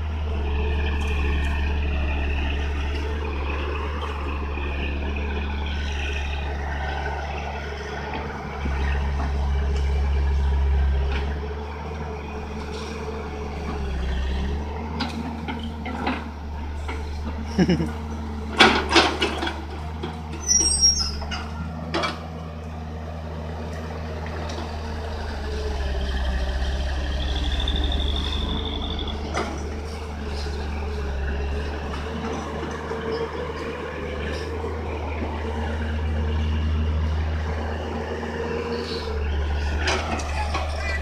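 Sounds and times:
excavator diesel engine running: 0.0 - 41.0.

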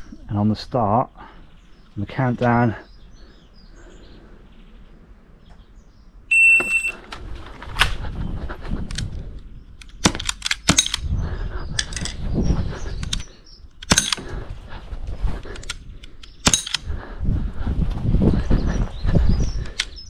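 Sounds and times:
electronic beep: 6.3 - 7.0
airsoft pistol shots: 13.8 - 14.2.

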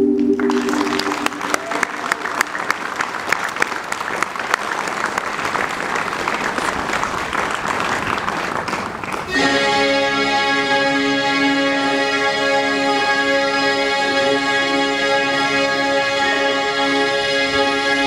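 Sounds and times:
music: 0.0 - 1.6, 9.3 - 18.0
audience applauding: 0.3 - 9.6.

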